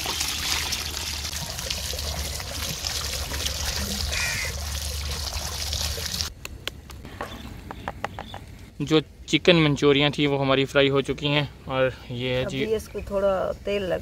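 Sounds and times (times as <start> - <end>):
hose water splashing into colander: 0.0 - 6.3.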